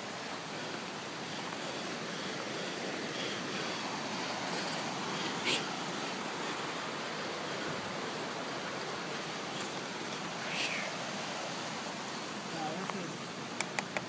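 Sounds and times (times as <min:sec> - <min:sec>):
river water rushing: 0:00.0 - 0:14.0
sharp click: 0:13.6 - 0:14.0.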